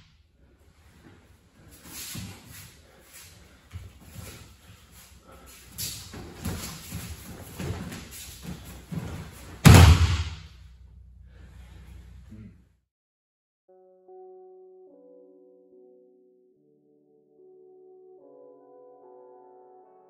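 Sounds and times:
feet shuffling on mats: 0.8 - 9.7
uniform fabric rustling: 5.6 - 9.7
heavy thud of body landing: 6.4 - 10.4.

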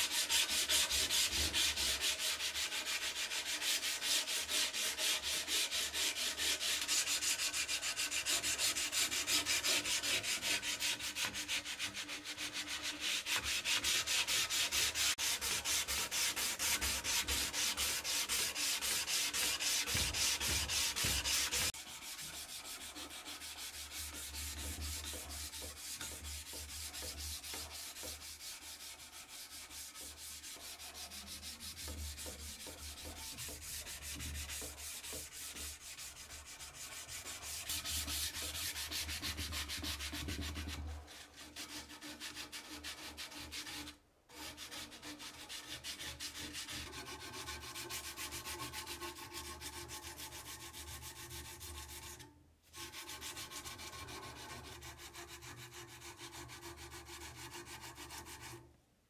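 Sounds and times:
sandpaper rasping on knife blade: 0.0 - 52.2.

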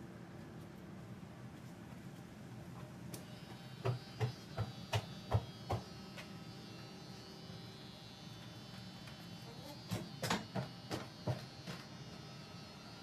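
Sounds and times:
electric hair clippers buzzing: 3.1 - 13.0.

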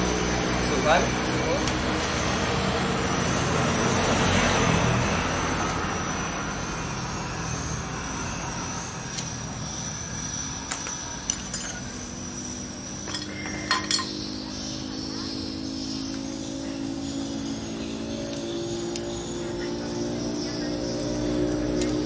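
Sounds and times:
metal engine parts clinking: 10.7 - 12.1, 13.0 - 14.3.

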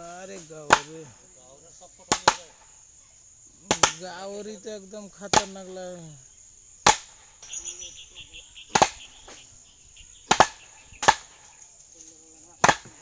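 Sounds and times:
mallet pounding wooden posts: 0.6 - 1.0, 2.1 - 2.7, 3.7 - 4.3, 5.2 - 5.8, 6.8 - 7.2, 8.7 - 9.4, 10.2 - 11.6, 12.6 - 13.0.

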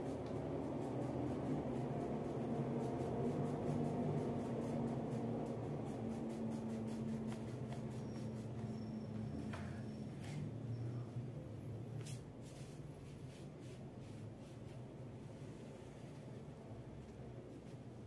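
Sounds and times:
crayon rubbing on paper: 0.0 - 9.0
steady low hum: 0.0 - 18.0.

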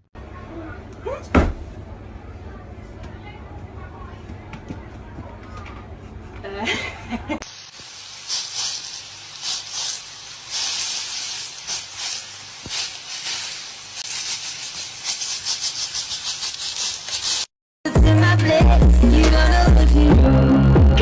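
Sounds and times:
sausages sizzling in oil: 7.4 - 17.5.

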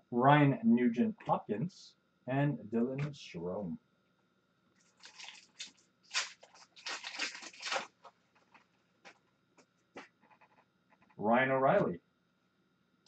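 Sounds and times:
foil wrapper tearing and crinkling: 4.8 - 8.6.

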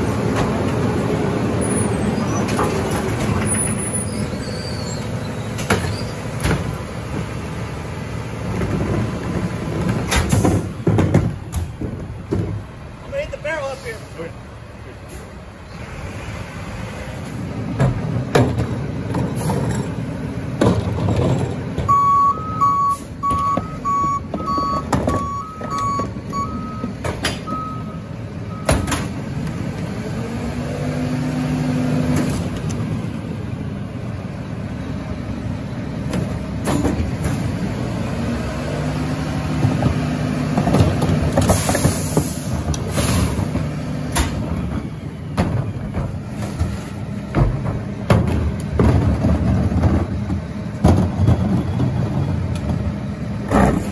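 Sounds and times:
garbage truck engine running: 0.0 - 13.1, 14.4 - 53.9
knocks and bangs: 8.6 - 12.7, 47.3 - 52.0
backup alarm beeping: 21.9 - 26.9, 27.5 - 29.0.

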